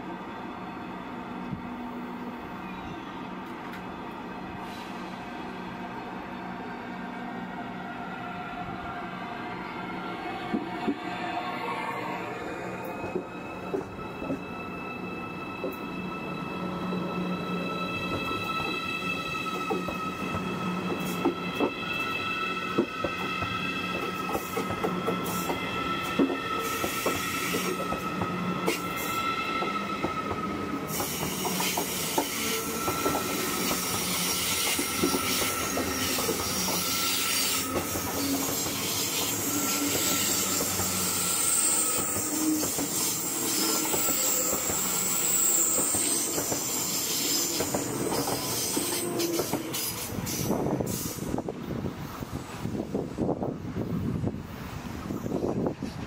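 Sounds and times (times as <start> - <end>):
train rolling past: 0.0 - 56.0
high wheel squeal: 9.6 - 51.4.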